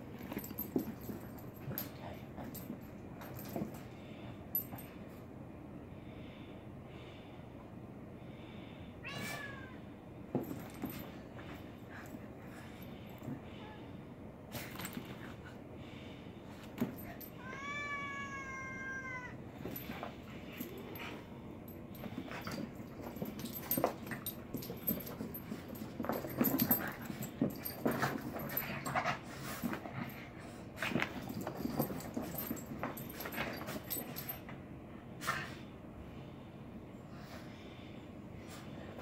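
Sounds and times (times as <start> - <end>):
cat yowling: 17.4 - 19.4.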